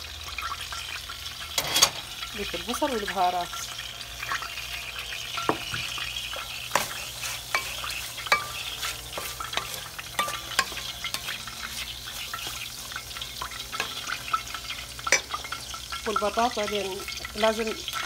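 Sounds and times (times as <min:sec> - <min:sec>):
food sizzling in oil: 0:00.0 - 0:18.0
wooden spoon knocking on pot: 0:05.4 - 0:06.0.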